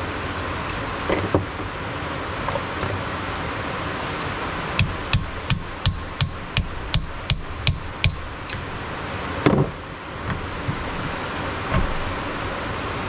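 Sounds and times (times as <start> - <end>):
hammer tapping on metal: 4.8 - 8.6.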